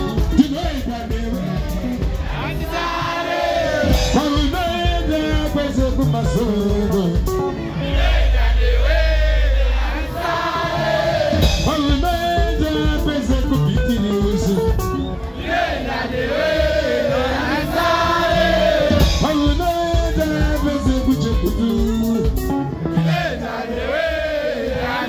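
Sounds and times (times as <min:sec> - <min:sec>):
electric guitars: 0:00.0 - 0:03.1, 0:03.8 - 0:08.6, 0:09.6 - 0:15.4, 0:17.7 - 0:23.3
bass line: 0:00.0 - 0:15.7, 0:17.2 - 0:23.4
person singing: 0:11.5 - 0:14.8, 0:18.9 - 0:22.6.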